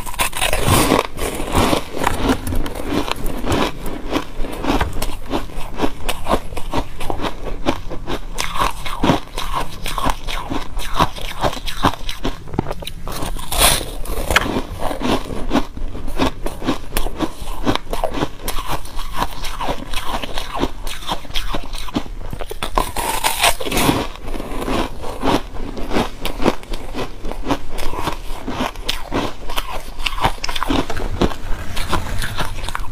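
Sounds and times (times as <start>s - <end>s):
chewing crunchy ice: 0.0s - 32.9s.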